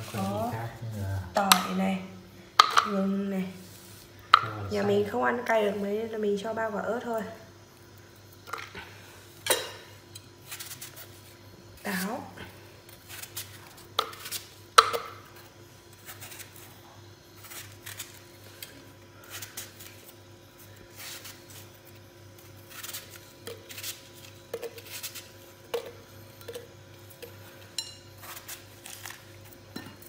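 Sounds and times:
knife cutting apple: 12.9s - 16.7s, 20.9s - 27.4s.

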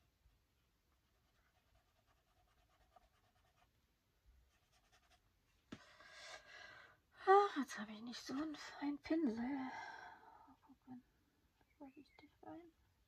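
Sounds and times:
paintbrush scratching on paper: 1.0s - 3.8s, 4.4s - 5.4s.

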